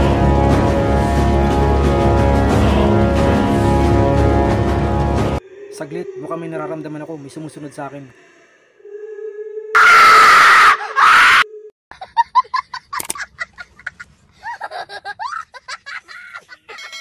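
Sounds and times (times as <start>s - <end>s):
loud scream: 9.7s - 11.7s
young child laughing: 11.9s - 17.0s.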